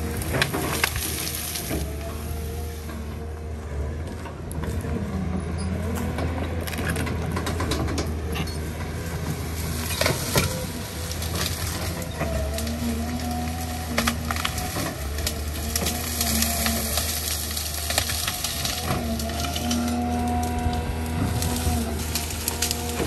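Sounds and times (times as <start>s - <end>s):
branches cracking and snapping: 0.0s - 3.1s, 6.0s - 23.0s
excavator diesel engine running: 0.0s - 23.0s.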